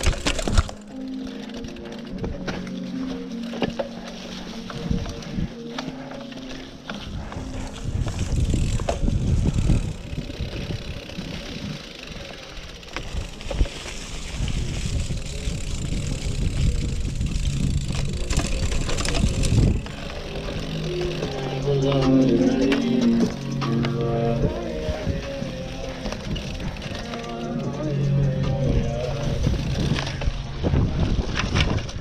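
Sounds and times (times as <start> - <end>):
bike rattling over bumps: 0.0 - 32.0
bike tyres rumbling on dirt: 0.0 - 32.0
wind on microphone: 7.0 - 12.1, 13.0 - 23.4, 27.9 - 32.0.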